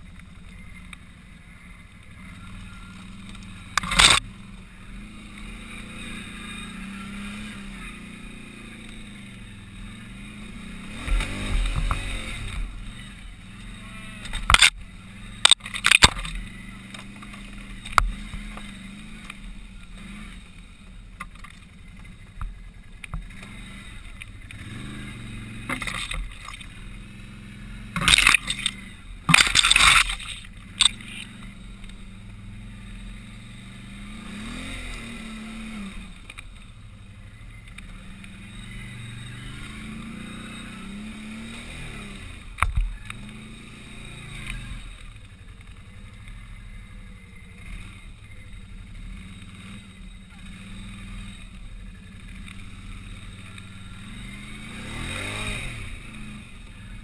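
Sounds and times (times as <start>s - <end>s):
atv engine revving: 0.0s - 57.0s
loud rough noises: 3.0s - 4.3s, 23.1s - 32.1s.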